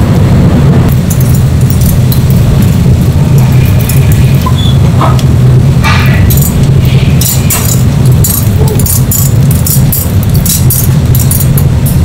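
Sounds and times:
loud low rumble: 0:00.0 - 0:12.0
grill racks clinking on metal: 0:05.8 - 0:12.0.

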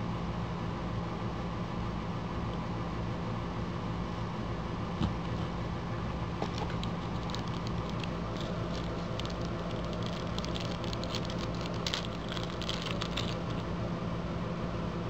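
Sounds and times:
steady low hum: 0:00.0 - 0:15.0
plastic wrapper crinkling: 0:06.4 - 0:13.7.

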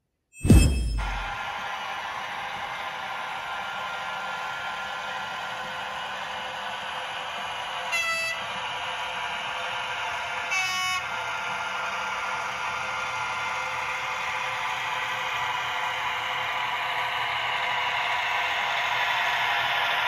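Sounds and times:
locomotive running sound: 0:00.4 - 0:20.0
locomotive horn blasts: 0:07.9 - 0:08.4, 0:10.5 - 0:11.1.

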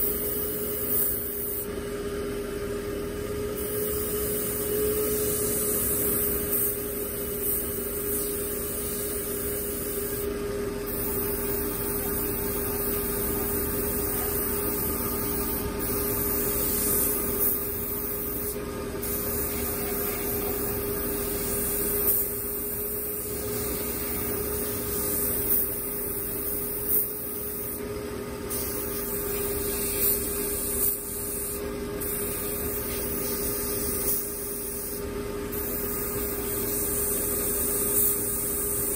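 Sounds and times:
airbrush hissing: 0:00.0 - 0:01.7, 0:03.6 - 0:27.8, 0:28.5 - 0:38.9
steady hum: 0:00.0 - 0:38.9.

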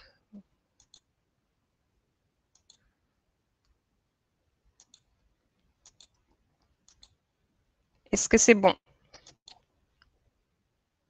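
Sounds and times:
computer mouse clicks: 0:00.8 - 0:01.1, 0:02.5 - 0:02.9, 0:04.8 - 0:05.1, 0:05.7 - 0:07.2, 0:09.1 - 0:10.1.

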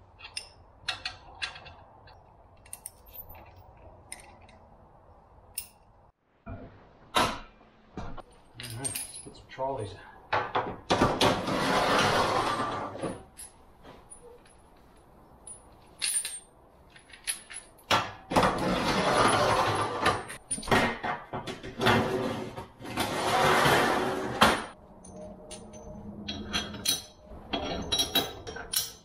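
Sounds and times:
metal clicks and clinks: 0:00.2 - 0:04.6, 0:05.5 - 0:05.9, 0:25.0 - 0:29.0.

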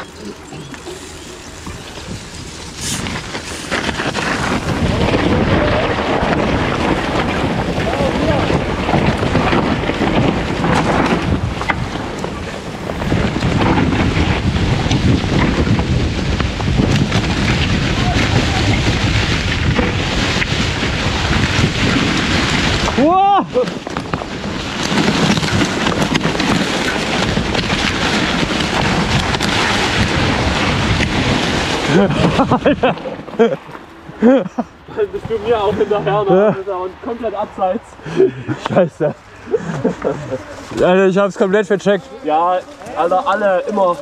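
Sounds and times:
bike clicks and rattles: 0:00.0 - 0:35.8
wind rushing over microphone: 0:00.0 - 0:41.8.

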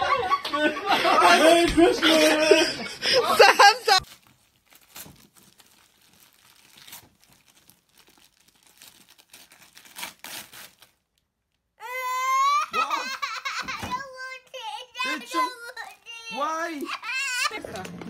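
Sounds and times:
wrapping paper tearing and crinkling: 0:04.0 - 0:11.6
child high-pitched cry: 0:11.8 - 0:17.6.

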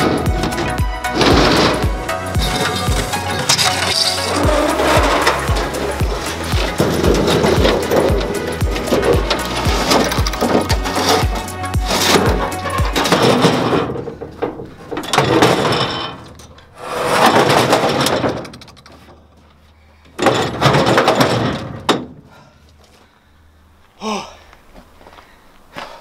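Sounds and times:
metal panel scraping: 0:00.0 - 0:19.1.

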